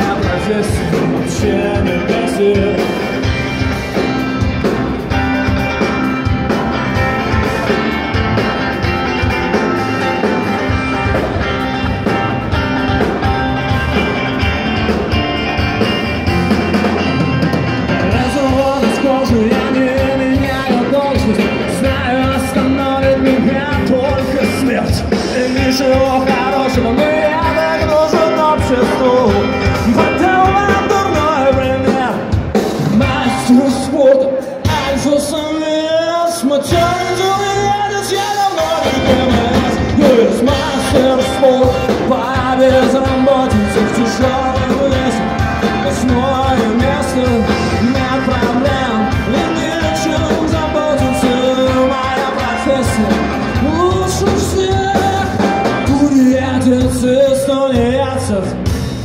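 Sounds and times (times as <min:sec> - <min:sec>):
person singing: 0:00.0 - 0:04.1, 0:17.8 - 0:58.8
bass guitar: 0:00.0 - 0:59.0
drum kit: 0:00.0 - 0:59.0
electric guitars: 0:00.0 - 0:59.0.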